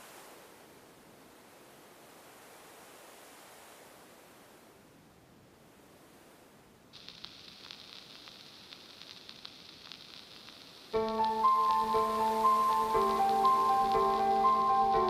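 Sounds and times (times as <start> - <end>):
faint high hiss with ticks: 0.0 - 15.0
background keyboard music: 11.0 - 15.0.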